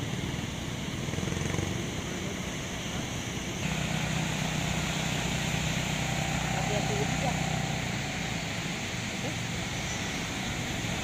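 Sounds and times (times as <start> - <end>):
quad bike engine droning: 0.0 - 11.0.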